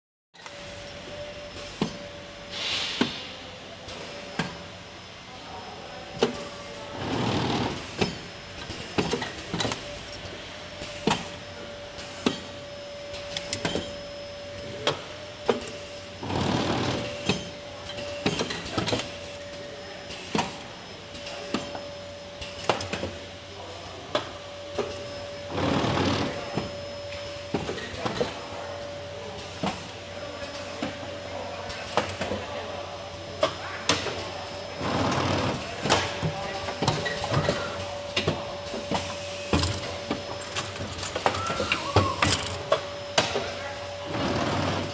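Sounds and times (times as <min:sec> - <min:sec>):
steady machine tone: 0:00.4 - 0:31.9, 0:32.5 - 0:44.9
pneumatic cylinders clacking: 0:01.6 - 0:03.3, 0:06.2 - 0:11.4, 0:12.0 - 0:14.0, 0:14.6 - 0:21.8, 0:22.4 - 0:23.2, 0:24.1 - 0:28.5, 0:29.4 - 0:31.0, 0:31.7 - 0:32.5, 0:33.4 - 0:44.9
air hissing: 0:02.5 - 0:04.3.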